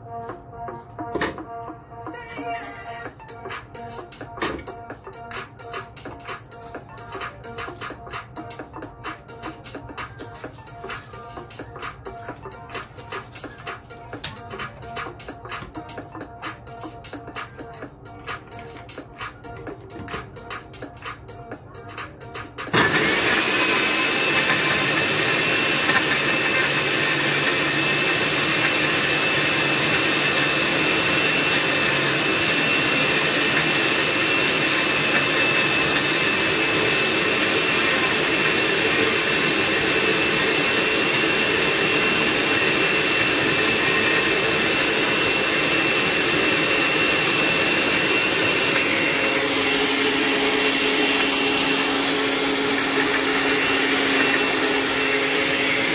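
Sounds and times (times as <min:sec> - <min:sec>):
blender motor whining: 0:22.7 - 0:55.9.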